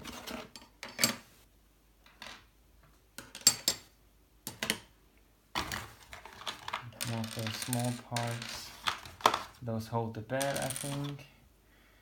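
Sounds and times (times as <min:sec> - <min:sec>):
plastic parts clacking: 0:05.6 - 0:09.6, 0:10.4 - 0:11.2.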